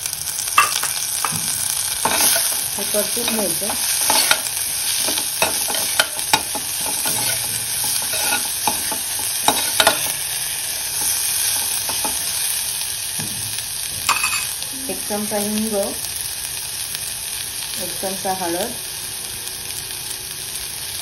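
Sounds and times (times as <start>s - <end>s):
vegetables sizzling in oil: 0.0s - 21.0s
metal spoon scraping pan: 0.6s - 1.4s, 2.0s - 12.5s.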